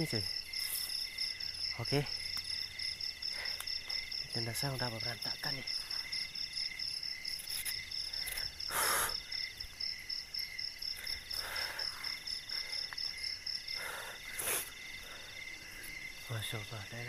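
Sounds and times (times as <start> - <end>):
night insects chirping: 0.0 - 17.0.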